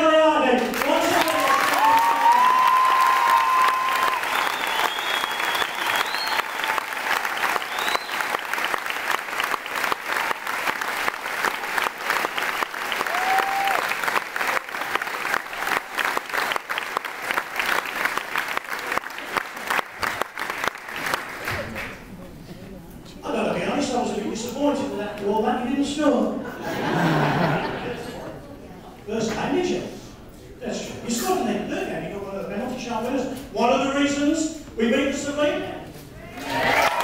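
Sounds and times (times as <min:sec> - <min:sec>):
audience applauding: 0:00.6 - 0:22.1, 0:36.3 - 0:37.0
calls and whoops: 0:01.2 - 0:06.9, 0:13.0 - 0:13.9, 0:36.3 - 0:37.0.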